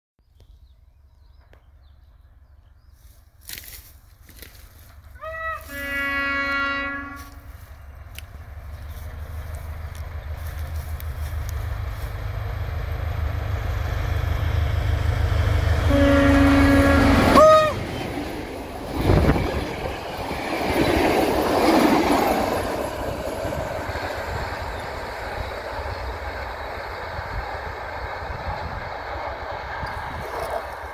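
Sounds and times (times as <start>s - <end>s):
diesel locomotive engine rumbling: 0.7s - 30.9s
train horn blast: 5.2s - 7.7s, 15.8s - 18.0s.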